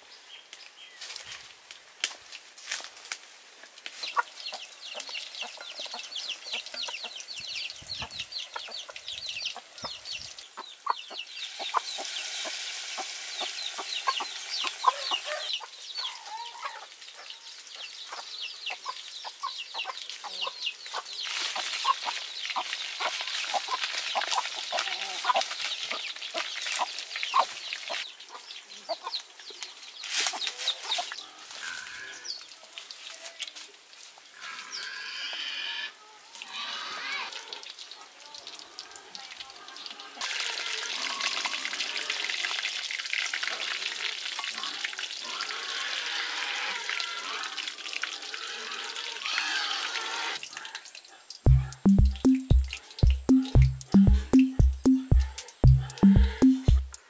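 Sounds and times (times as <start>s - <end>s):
fish deep-frying in oil: 11.3s - 15.1s, 37.6s - 45.4s.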